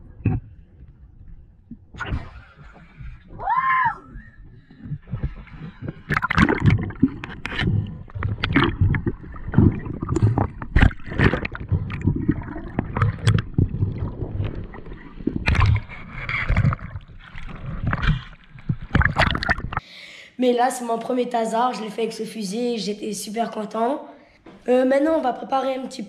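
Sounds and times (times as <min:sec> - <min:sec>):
bubbles: 0:00.0 - 0:19.8
water sloshing and gurgling: 0:00.0 - 0:19.8.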